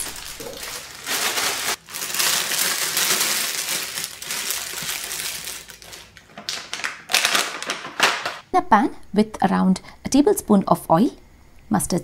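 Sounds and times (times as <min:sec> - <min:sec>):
cereal rattling in bag: 0:00.0 - 0:08.4
plastic bag crinkling: 0:00.0 - 0:08.4.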